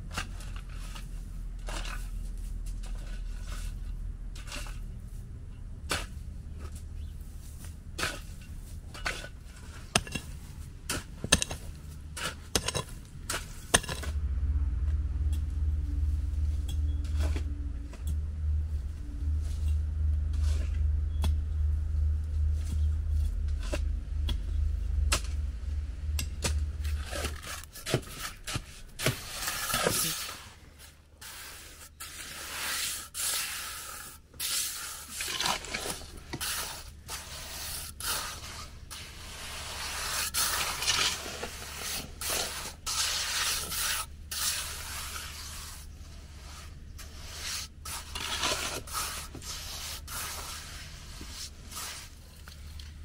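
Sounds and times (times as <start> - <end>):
low hum: 0.0 - 30.8
scraping and rubbing strokes: 0.1 - 53.0.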